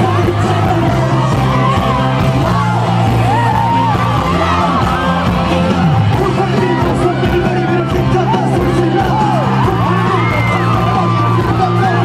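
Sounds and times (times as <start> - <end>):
fans screaming: 0.0 - 12.0
fans singing along: 0.0 - 12.0
pop music over sound system: 0.0 - 12.0.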